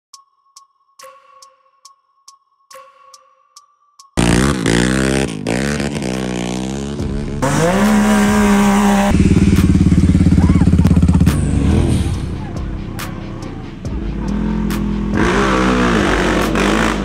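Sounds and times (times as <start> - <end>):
engine running with pulsing beat: 4.2 - 17.0
engines revving: 4.2 - 17.0.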